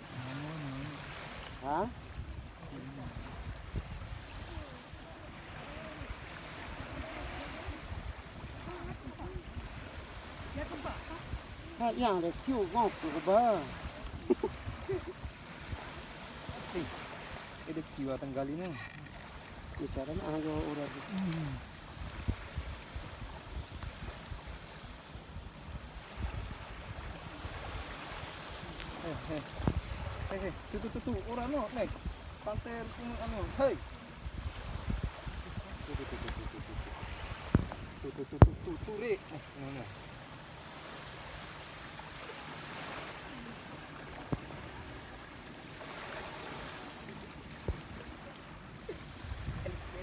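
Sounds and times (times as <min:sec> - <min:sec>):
small waves washing onto beach: 0:00.0 - 0:50.0
wind buffeting microphone: 0:01.8 - 0:12.8, 0:13.6 - 0:17.3, 0:21.5 - 0:39.0, 0:49.1 - 0:50.0.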